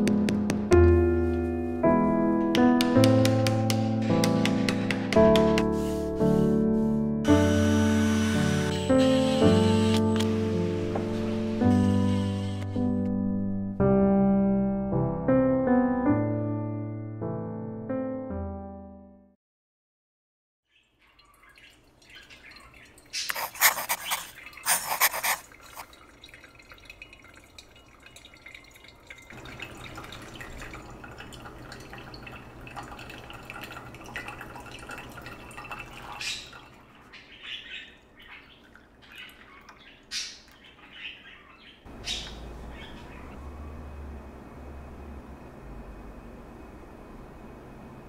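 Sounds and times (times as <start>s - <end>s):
water trickling onto coffee grounds: 21.0s - 37.2s
coffee poured into cup: 23.3s - 36.8s.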